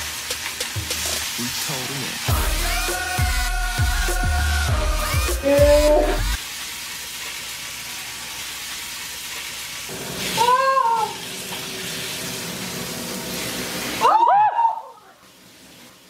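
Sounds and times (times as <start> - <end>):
meat sizzling in a frying pan: 0.0 - 14.2
woman crying out: 5.3 - 6.4, 10.4 - 11.2, 14.0 - 15.1.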